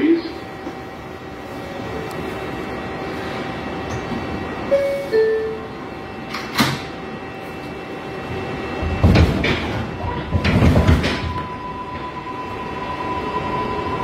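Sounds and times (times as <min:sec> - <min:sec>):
subway car hum: 0:00.0 - 0:14.0
subway doors thumping shut: 0:03.8 - 0:07.1, 0:08.3 - 0:12.5.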